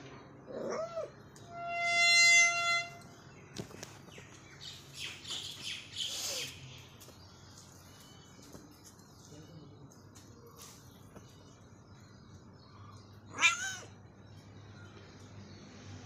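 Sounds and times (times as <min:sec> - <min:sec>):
birds chirping: 0:00.0 - 0:16.0
gate hinges squealing: 0:01.5 - 0:03.0
cat meowing: 0:13.3 - 0:14.0.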